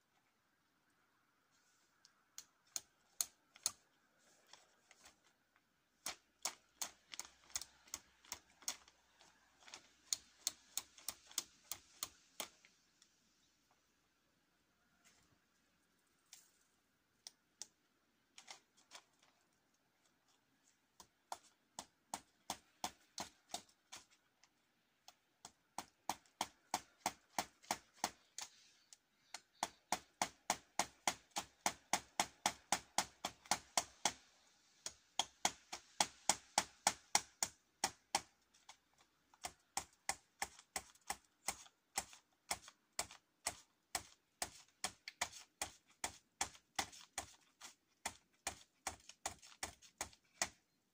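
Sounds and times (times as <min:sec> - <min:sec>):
hammer striking nails into wood: 0:34.9 - 0:38.3.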